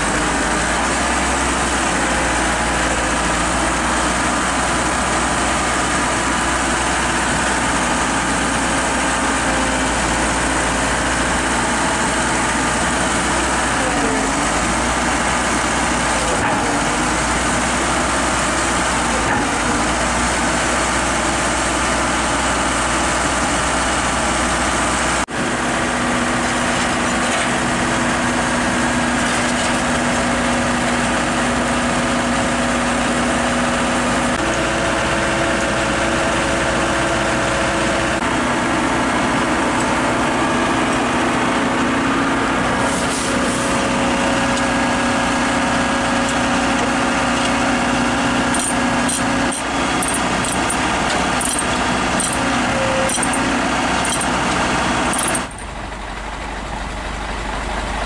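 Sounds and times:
diesel engine idling: 0.0 - 58.0.

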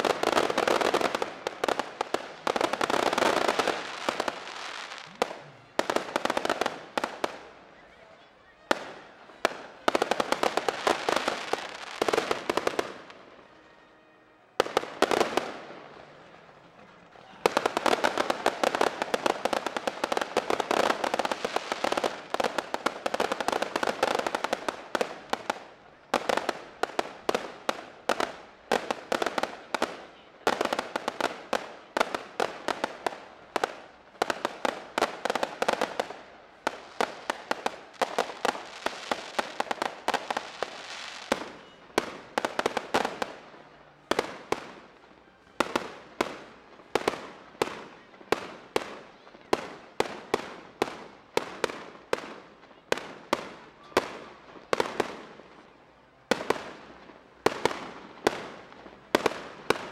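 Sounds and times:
fireworks bangs and crackling: 0.0 - 13.7, 14.6 - 59.9.

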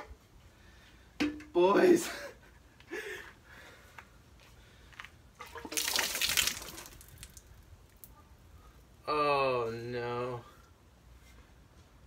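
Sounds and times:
fluid pouring and splashing on ground: 5.4 - 8.1.

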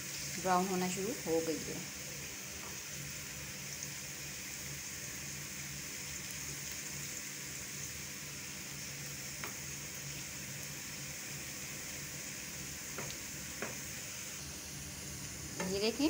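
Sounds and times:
onions sizzling in hot oil: 0.0 - 16.0.

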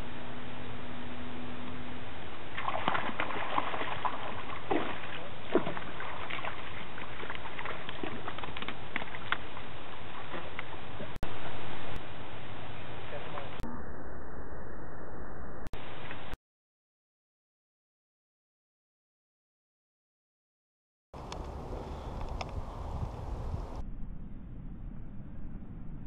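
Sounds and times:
fish splashing in water: 2.5 - 11.2.

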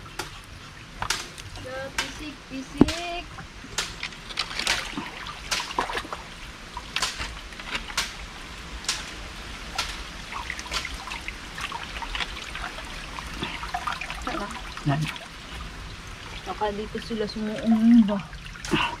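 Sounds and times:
creek water trickling: 0.0 - 19.0
hands splashing in water: 3.8 - 8.2.

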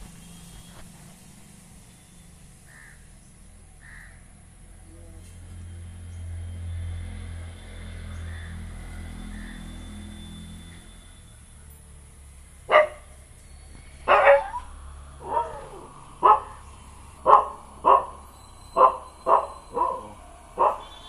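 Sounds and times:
dog barking: 12.7 - 13.1, 14.1 - 16.6, 17.2 - 18.2, 18.8 - 21.0.

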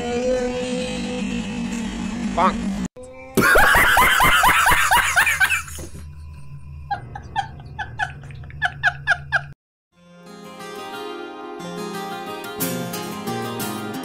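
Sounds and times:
man laughing hysterically: 3.4 - 5.8, 6.9 - 9.6.

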